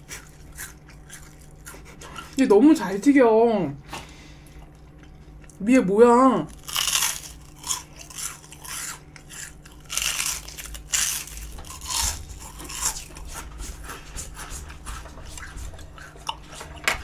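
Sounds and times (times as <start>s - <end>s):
crunchy bites and chewing: 0.0s - 2.3s, 6.5s - 13.8s.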